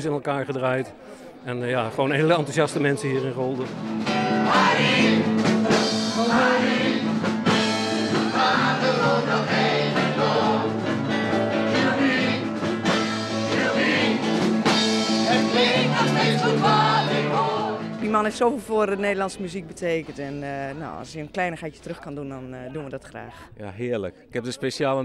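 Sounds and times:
instruments with steady bass line: 3.6s - 18.1s
choir singing blues song: 4.0s - 19.8s.

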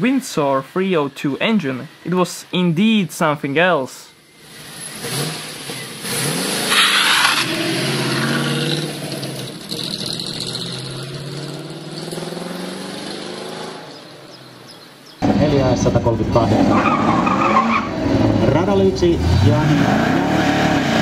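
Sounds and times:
car engine revving: 4.2s - 21.0s.

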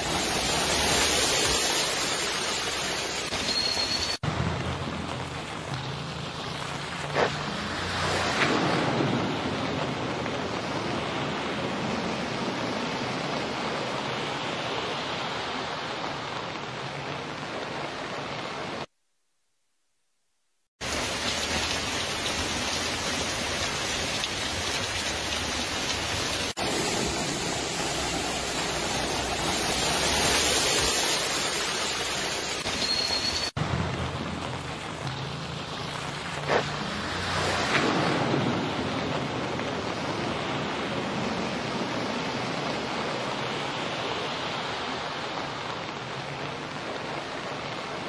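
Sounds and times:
flowing floodwater: 0.0s - 18.9s, 20.8s - 48.0s
heavy rain: 0.0s - 18.9s, 20.8s - 48.0s.

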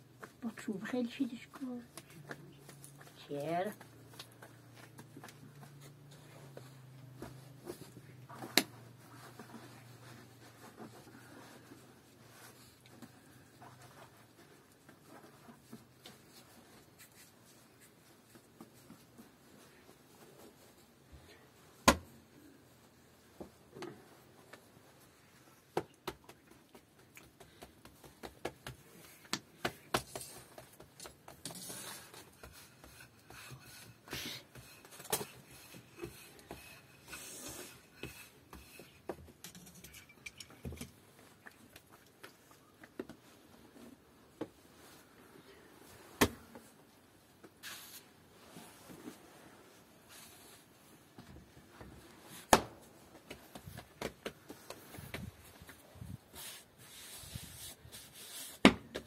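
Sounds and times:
objects knocking and scraping: 34.5s - 41.5s.

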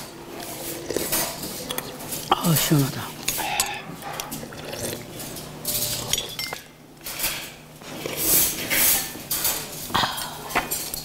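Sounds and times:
eating sounds: 0.3s - 6.1s, 7.8s - 8.7s
utensils clinking on ceramic bowls: 0.8s - 7.6s, 8.3s - 11.0s.

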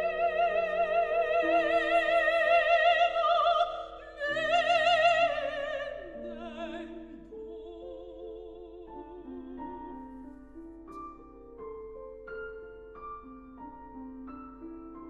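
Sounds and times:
operatic soprano singing: 0.0s - 10.4s
grand piano accompaniment: 0.0s - 15.0s.

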